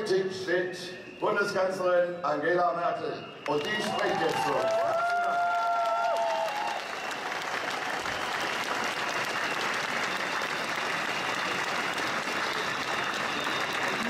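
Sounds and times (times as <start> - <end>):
large crowd applauding: 3.4 - 14.0.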